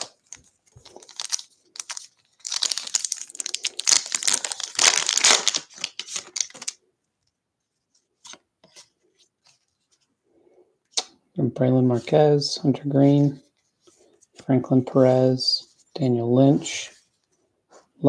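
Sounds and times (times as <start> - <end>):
foil wrapper tearing and crinkling: 0.9 - 6.8.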